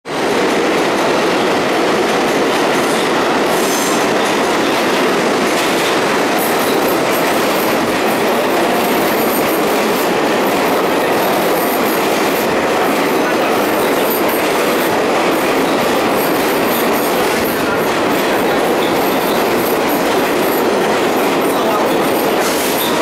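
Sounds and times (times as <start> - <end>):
subway train wheels rumbling: 0.1 - 23.0
train wheels squealing: 2.8 - 5.0, 6.3 - 12.6, 13.2 - 23.0.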